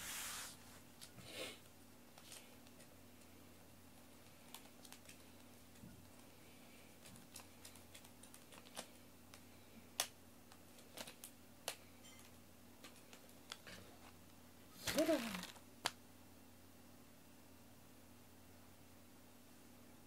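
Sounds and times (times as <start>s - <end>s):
faint room hum: 0.0s - 20.0s
small irregular clicks: 4.2s - 6.3s, 7.0s - 13.6s.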